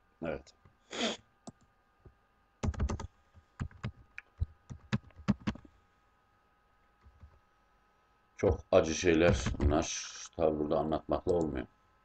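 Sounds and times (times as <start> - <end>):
typing on a computer keyboard: 2.6 - 5.6.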